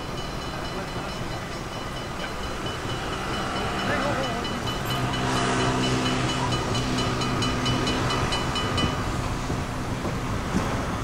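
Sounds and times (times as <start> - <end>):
level crossing bell ringing: 0.0 - 9.1
tram rolling with low hum: 0.0 - 11.0.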